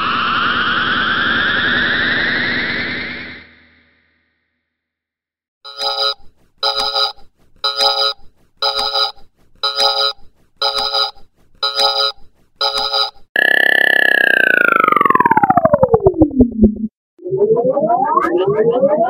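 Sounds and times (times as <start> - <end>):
falling synth glide: 0.0 - 3.6, 13.4 - 19.0
trilling synth tone pulsing: 13.4 - 19.0.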